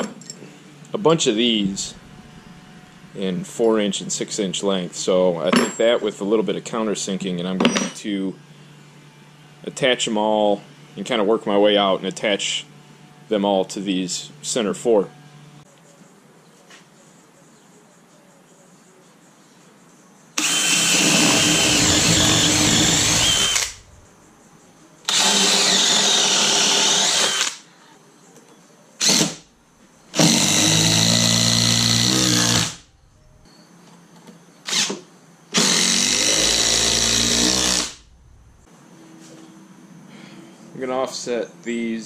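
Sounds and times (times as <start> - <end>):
cordless drill boring into wood: 20.4 - 23.8, 25.1 - 27.6, 29.0 - 29.4, 30.2 - 32.8, 34.7 - 34.9, 35.6 - 38.0
drill trigger blips: 20.4 - 24.0, 25.1 - 27.6, 35.6 - 38.4.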